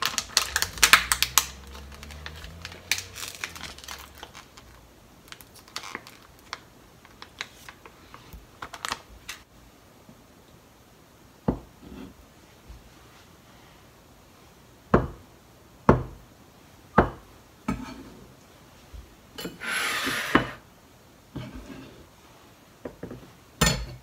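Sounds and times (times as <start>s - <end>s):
knife scraping: 19.4s - 20.6s.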